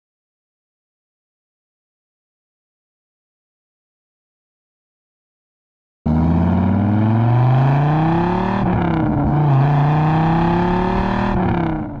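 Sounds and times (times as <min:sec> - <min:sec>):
car engine accelerating hard: 0:06.1 - 0:12.0.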